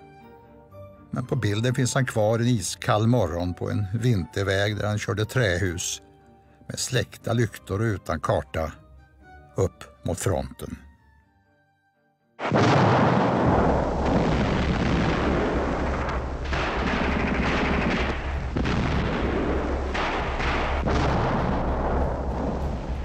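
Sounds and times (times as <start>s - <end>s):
gunfire and explosions: 12.4s - 23.0s
sharp blasts: 12.4s - 23.0s.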